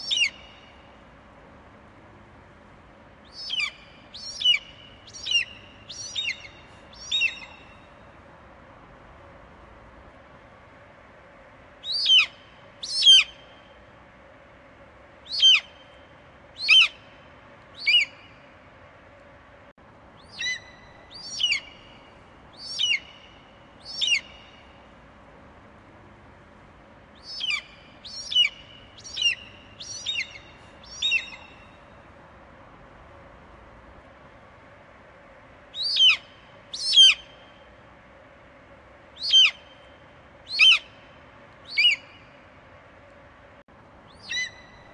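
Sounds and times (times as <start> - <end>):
eagle high piping calls: 0.0 - 0.6, 3.3 - 7.8, 11.8 - 13.4, 15.3 - 15.8, 16.6 - 17.1, 17.8 - 18.4, 20.2 - 21.9, 22.6 - 24.6, 27.2 - 31.8, 35.8 - 37.4, 39.2 - 39.9, 40.5 - 41.0, 41.6 - 42.3, 44.1 - 44.9
faint background hum: 0.0 - 44.9.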